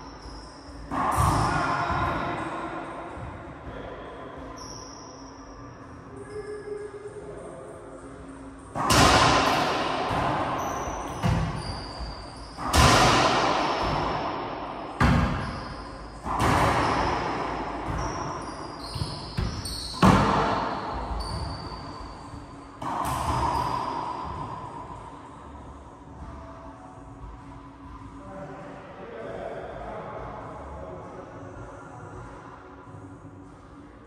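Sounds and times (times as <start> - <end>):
racquetball hits echoing: 0.0 - 4.7, 8.6 - 25.2.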